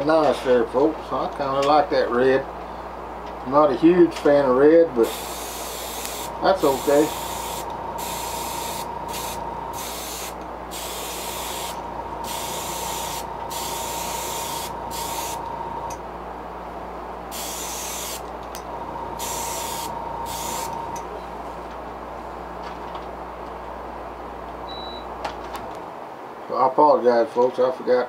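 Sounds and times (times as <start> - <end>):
airbrush spraying hiss: 5.0 - 15.6, 17.3 - 18.2, 19.2 - 21.0
steady high tone: 5.0 - 16.0, 17.3 - 21.2
low hum: 6.0 - 11.0, 11.7 - 17.2, 18.3 - 21.4.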